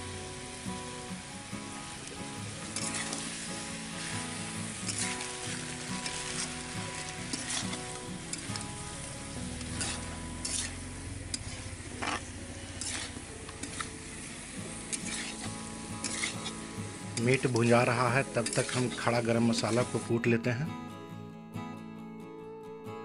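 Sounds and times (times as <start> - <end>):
meat sizzling in a pan: 0.0 - 20.2
metal spatula scraping a pan: 2.7 - 20.0.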